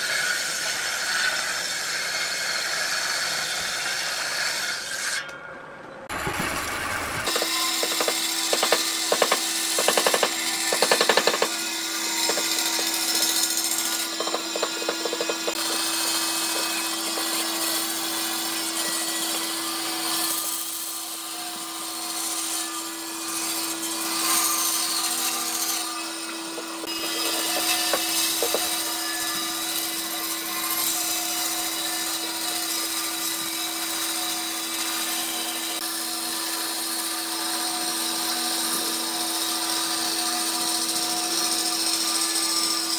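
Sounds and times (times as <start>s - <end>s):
band saw cutting wood: 0.0s - 5.4s, 6.1s - 42.9s
rattle of sharp knocks: 7.3s - 11.6s, 12.2s - 15.9s, 26.6s - 28.8s.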